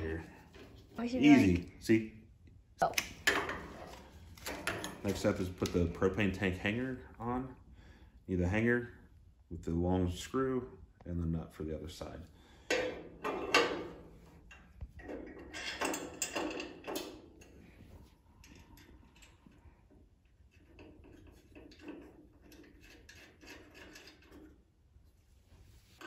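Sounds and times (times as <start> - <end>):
metal knocks and scrapes: 3.2 - 5.9, 12.7 - 17.4, 20.5 - 24.6.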